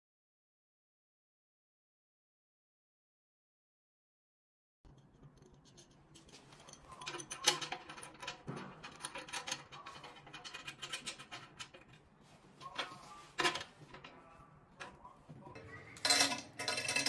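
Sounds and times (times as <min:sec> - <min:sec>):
metal bolts and nuts clinking: 0:04.9 - 0:12.0, 0:12.7 - 0:14.1, 0:16.0 - 0:17.0.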